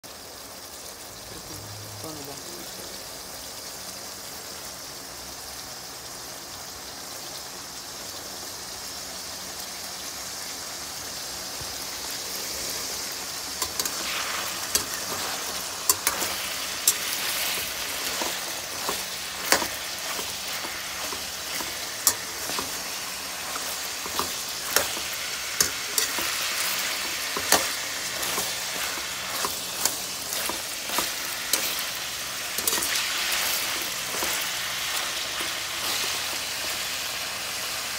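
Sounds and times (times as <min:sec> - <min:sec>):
sausages sizzling in oil: 0:00.0 - 0:37.9
metal spatula scraping wok: 0:13.5 - 0:37.0.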